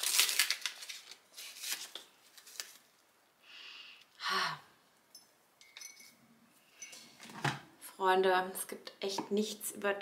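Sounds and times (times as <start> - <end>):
paper wrapper rustling: 0.0 - 3.0
person sighing: 3.5 - 4.8.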